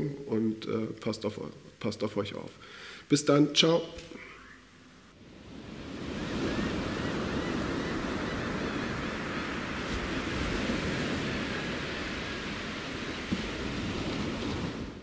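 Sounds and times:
ocean waves washing in: 5.1s - 15.0s.

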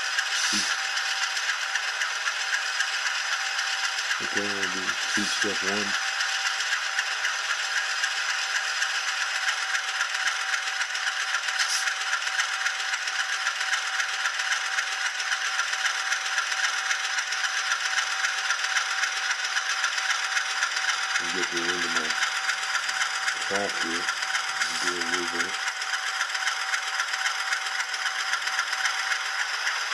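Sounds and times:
tinny rattling diesel engine: 0.0s - 29.9s.

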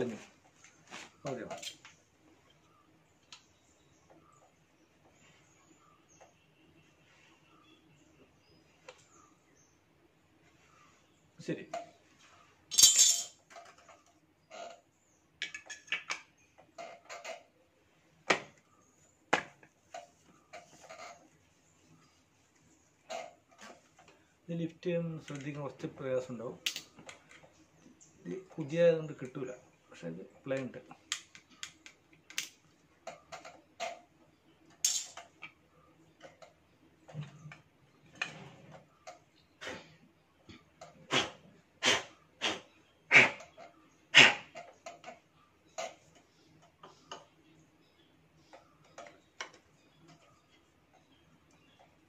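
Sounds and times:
light clicks and knocks of metal: 0.0s - 5.2s, 12.7s - 17.6s, 30.4s - 35.6s, 48.4s - 52.0s
metal parts scraping rattle: 1.5s - 1.8s, 12.7s - 14.8s, 34.8s - 35.2s.

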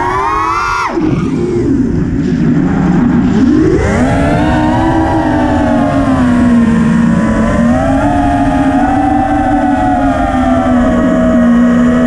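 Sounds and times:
wind rush: 0.0s - 12.0s
quadcopter motors whining: 3.7s - 12.0s.

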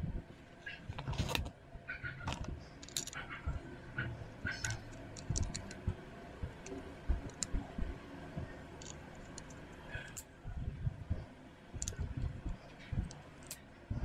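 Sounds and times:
plastic parts clicking: 2.2s - 3.3s, 4.5s - 5.9s, 6.6s - 7.5s, 8.8s - 10.3s, 11.8s - 13.6s.

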